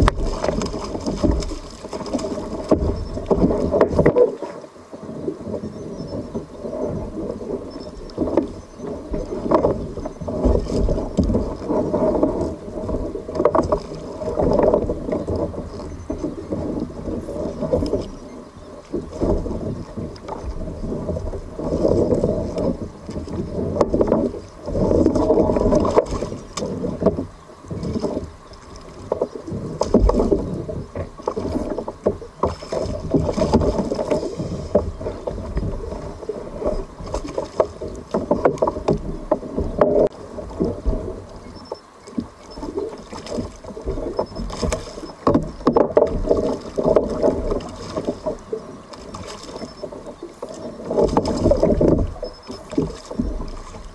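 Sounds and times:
water slapping against hull: 0.0s - 53.9s.

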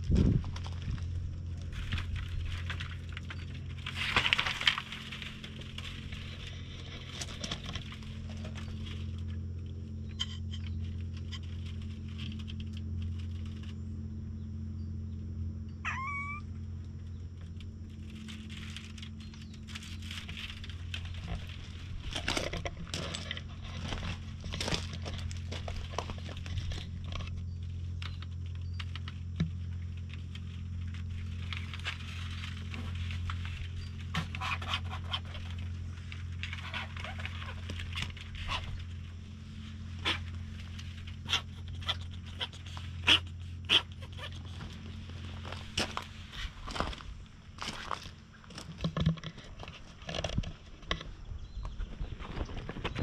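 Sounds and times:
steady low hum: 0.0s - 53.0s
cat meowing: 15.8s - 16.5s
rustling and clicks: 16.8s - 43.0s.

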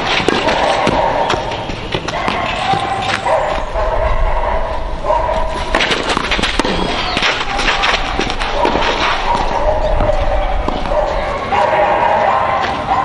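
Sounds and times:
racket hitting tennis ball: 0.0s - 3.7s, 5.3s - 11.3s.

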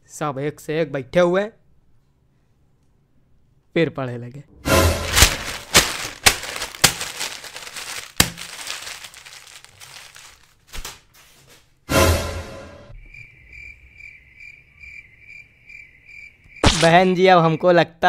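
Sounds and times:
soft rustling: 5.0s - 10.7s
cricket chirping: 12.9s - 17.8s.

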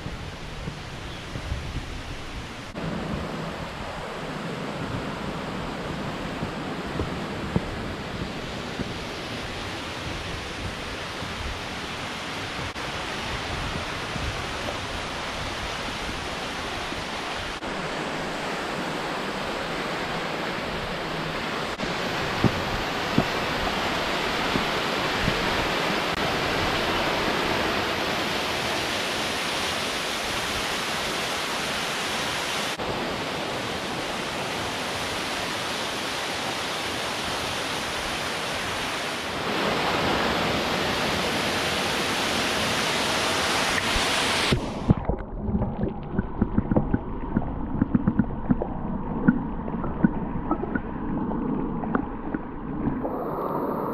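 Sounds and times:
waterfall rushing: 8.2s - 45.2s.

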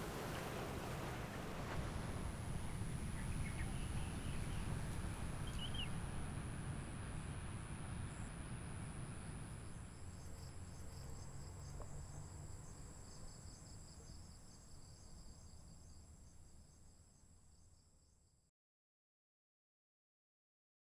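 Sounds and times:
insects chirping: 1.9s - 18.3s.

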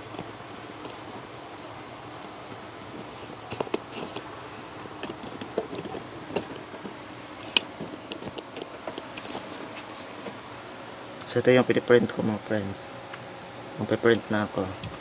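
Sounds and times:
handling clicks and rustles: 0.0s - 11.4s.

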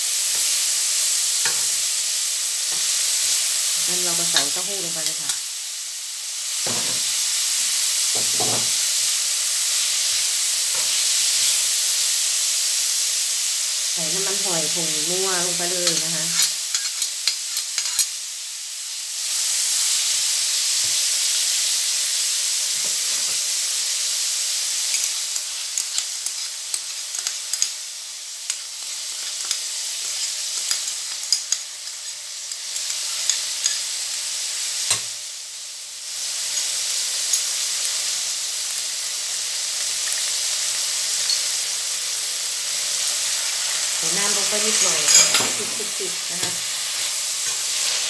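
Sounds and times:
food sizzling in hot oil: 0.0s - 48.0s
metal spatula scraping a pan: 15.9s - 18.1s, 44.4s - 48.0s.

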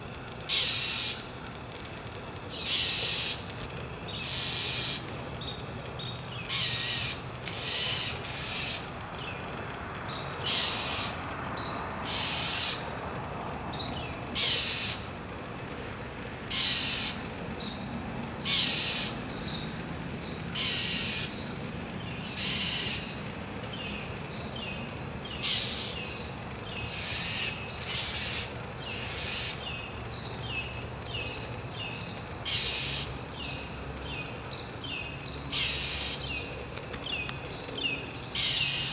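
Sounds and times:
high insect drone: 0.0s - 38.9s
bird harsh scold calls: 0.5s - 1.2s, 4.2s - 5.0s, 6.4s - 8.9s, 20.6s - 21.3s, 22.4s - 23.1s, 26.8s - 29.7s.

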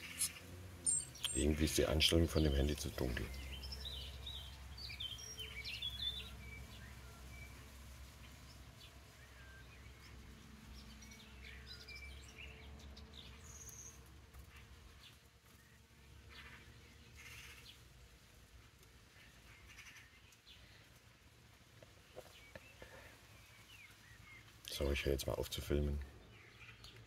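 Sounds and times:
small songbirds chirping: 0.0s - 27.0s.

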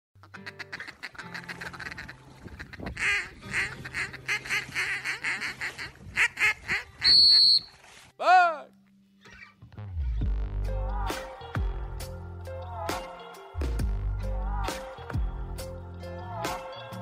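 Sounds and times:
duck quacking: 0.2s - 7.7s.

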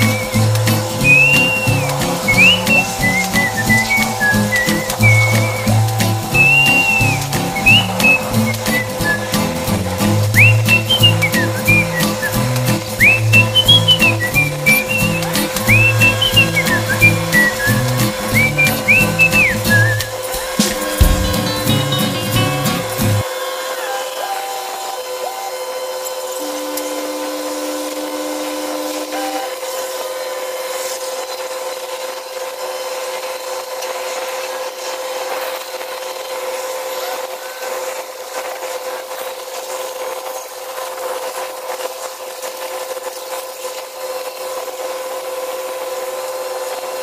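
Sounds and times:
extra tone: 0.0s - 23.2s
rasping hiss: 0.0s - 23.2s
industrial machinery humming: 0.0s - 31.0s.

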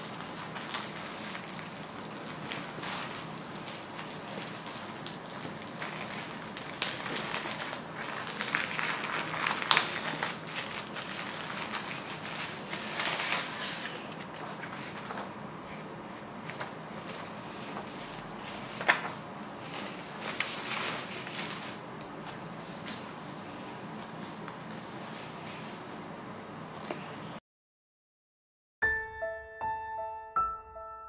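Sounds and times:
plastic wrapping crinkling: 0.0s - 25.6s.

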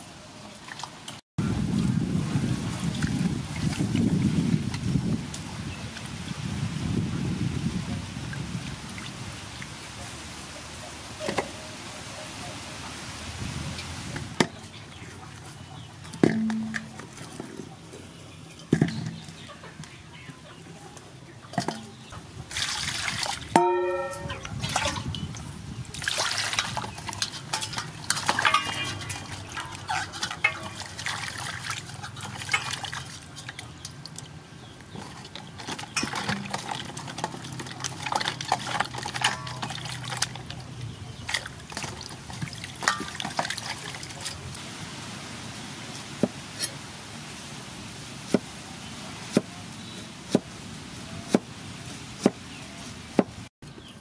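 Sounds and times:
hands splashing vegetables in water: 22.5s - 25.3s, 25.9s - 34.3s, 34.9s - 44.4s.

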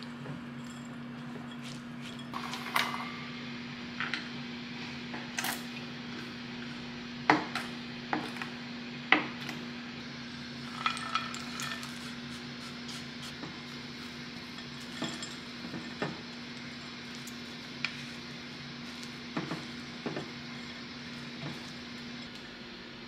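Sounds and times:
nuts clinking into metal bowl: 10.7s - 12.0s.

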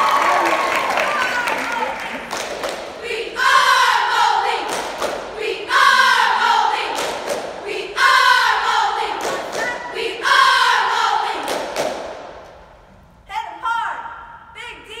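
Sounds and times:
sharp claps: 0.0s - 3.0s, 4.6s - 5.3s, 6.9s - 7.6s, 9.2s - 9.8s, 11.4s - 12.6s
cheerleaders chanting in unison: 0.0s - 12.4s.

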